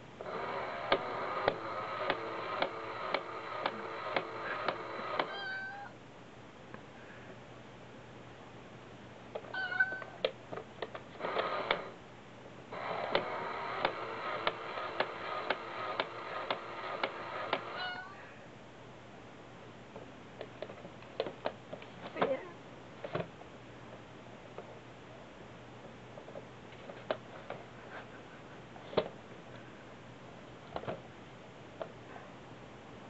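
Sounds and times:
toy meow sound: 5.1 - 6.0, 9.5 - 10.2, 17.7 - 18.2.

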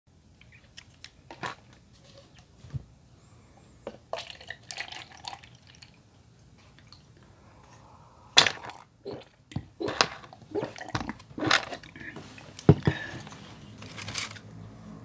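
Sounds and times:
drink pouring into plastic cup: 4.1 - 6.0
person gulping: 8.3 - 13.2.

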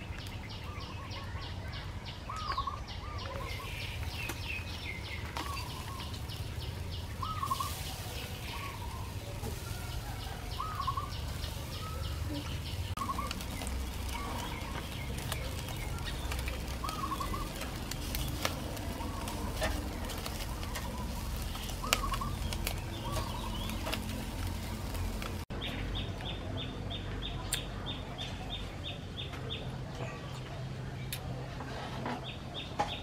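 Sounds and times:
birds calling: 0.0 - 33.0
metal tongs clicking on grill: 17.5 - 25.2.

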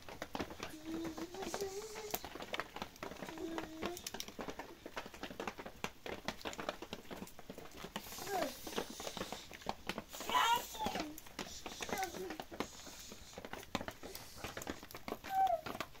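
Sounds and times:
child's faint voice: 0.6 - 4.2, 8.0 - 9.5, 10.1 - 13.4, 15.2 - 15.8.

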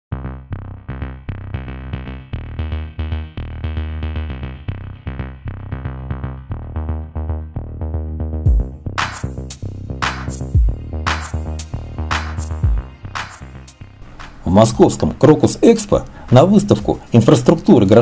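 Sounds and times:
synthesizer chords: 0.1 - 18.0
drum machine beat: 8.5 - 17.5.

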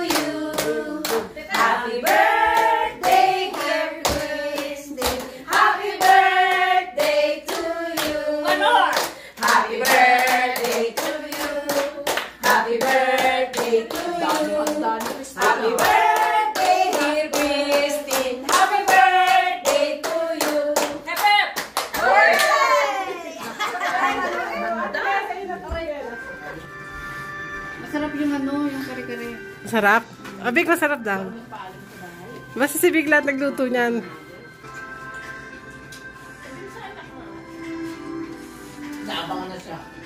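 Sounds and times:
women singing together: 0.0 - 21.4.

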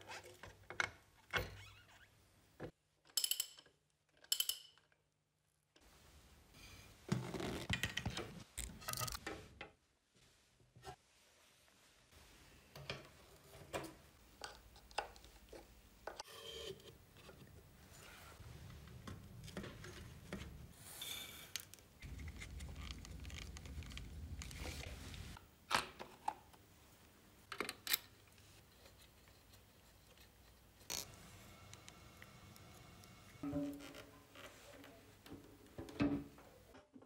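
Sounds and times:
parts rubbing and scraping: 28.6 - 34.8.

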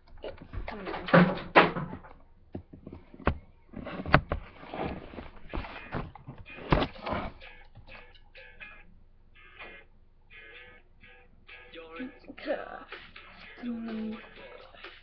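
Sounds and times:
knocks and bumps: 0.3 - 7.4
rustling: 2.0 - 7.4.

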